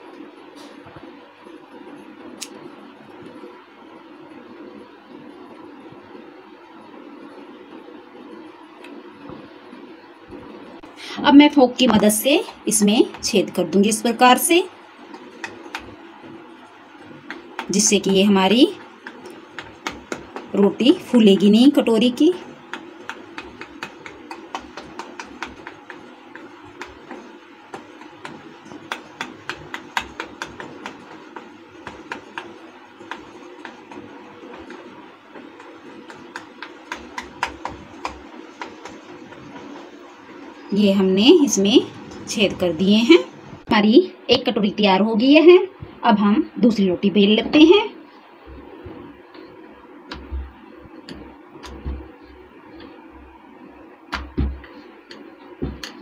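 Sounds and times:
steady low hum: 0.0 - 56.0
rolling pin knocking on countertop: 19.0 - 21.5, 22.4 - 39.8, 54.1 - 56.0.

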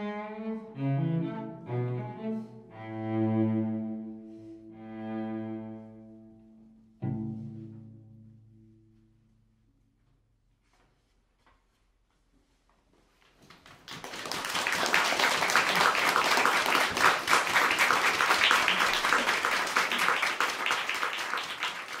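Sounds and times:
audience applause: 13.5 - 22.0.

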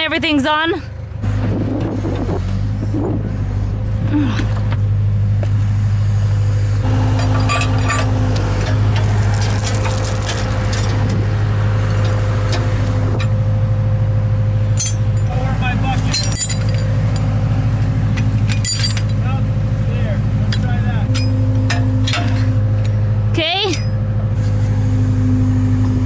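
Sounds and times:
backhoe engine droning: 0.0 - 26.0
metallic clinks: 14.8 - 17.3.

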